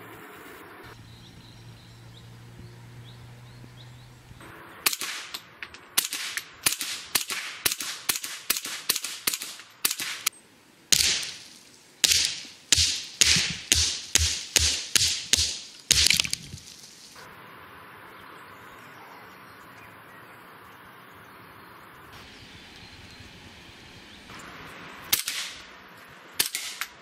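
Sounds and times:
rifle firing rapid shots: 4.8 - 5.4, 6.0 - 10.3, 10.9 - 16.3, 25.1 - 25.6, 26.4 - 27.0.

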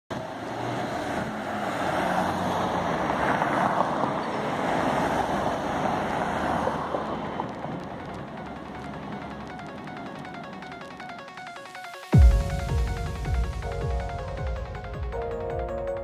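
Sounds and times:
vehicle passing by: 0.1 - 9.2
city street traffic: 0.1 - 11.4.

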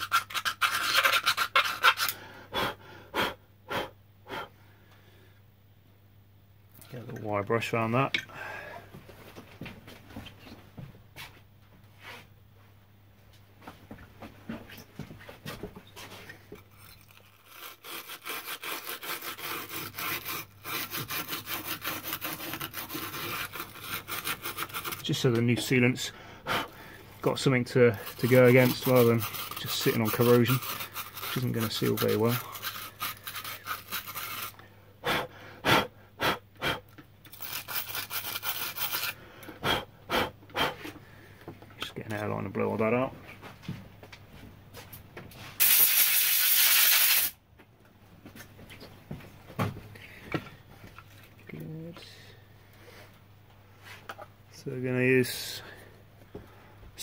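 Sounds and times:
wire brush scraping: 0.0 - 2.2, 16.6 - 25.9, 27.2 - 34.6, 37.3 - 39.2.

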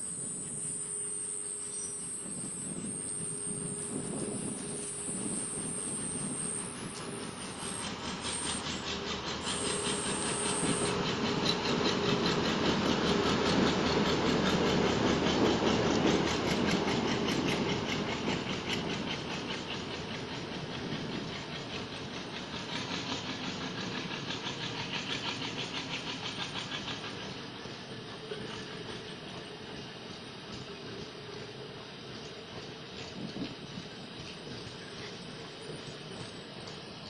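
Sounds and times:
train rumbling past: 0.0 - 37.0
wheels clacking over rail joints: 6.2 - 37.0.

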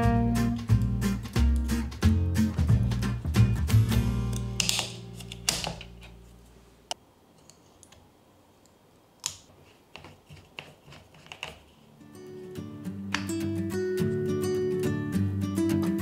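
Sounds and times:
guitar music: 0.0 - 5.5, 12.0 - 16.0
plastic bottle cap clicks: 4.3 - 5.9.

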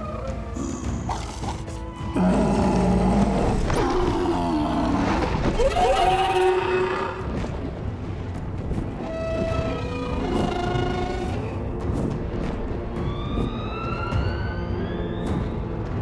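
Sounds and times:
dragon growling and roaring: 0.6 - 7.4.

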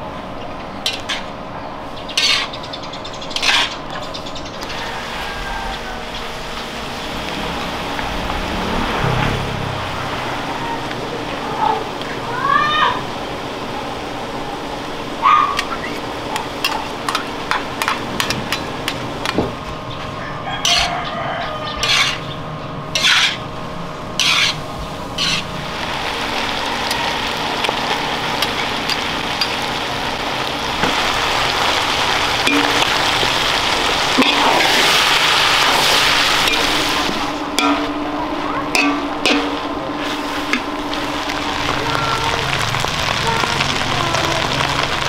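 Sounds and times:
hot pan sizzling: 0.8 - 45.0
metal spatula scraping wok: 2.1 - 2.6, 3.3 - 3.9, 20.6 - 21.0, 21.6 - 23.5, 24.2 - 24.6, 25.2 - 25.6, 34.1 - 38.0.

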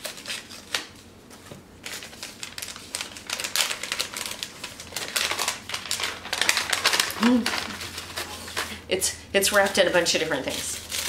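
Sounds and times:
packaging crinkling and rustling: 0.0 - 8.8, 9.6 - 11.0.

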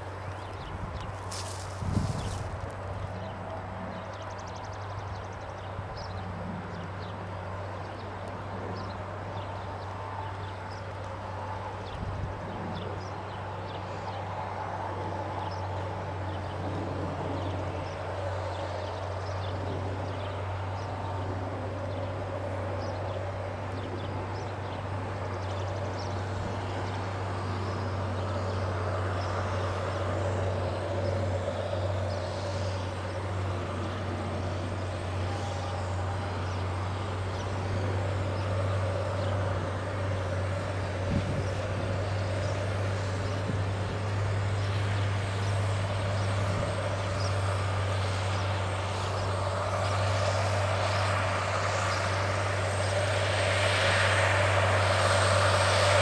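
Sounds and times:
rush of tillage and tyres: 0.0 - 56.0
tractor diesel engine droning: 14.0 - 56.0.

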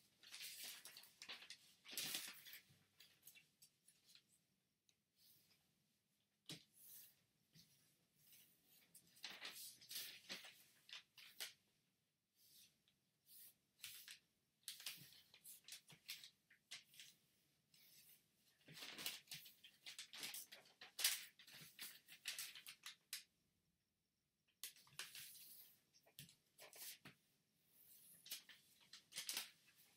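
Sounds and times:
paper rustling and crinkling: 0.1 - 4.3, 8.3 - 11.6, 13.4 - 17.2, 17.8 - 23.3, 24.6 - 27.2, 28.0 - 29.9.

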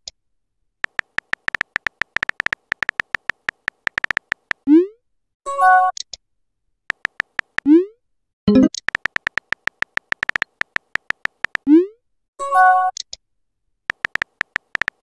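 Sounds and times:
keyboard tap clicks: 0.8 - 4.6, 6.9 - 7.7, 8.5 - 11.7, 13.9 - 15.0.

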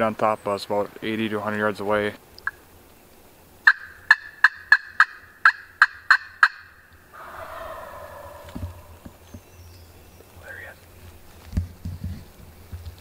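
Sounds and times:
turkey gobbling: 3.7 - 9.4
turkey call notes: 7.2 - 9.5.

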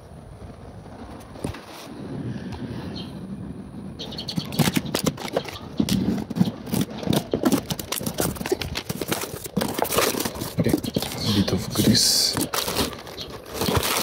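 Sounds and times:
handling knocks and clicks: 4.2 - 14.0.

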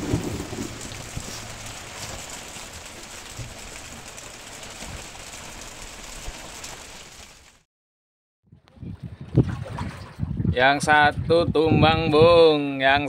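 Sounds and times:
faint taps of raindrops: 0.0 - 7.6
rain and wind hiss: 0.0 - 7.6.

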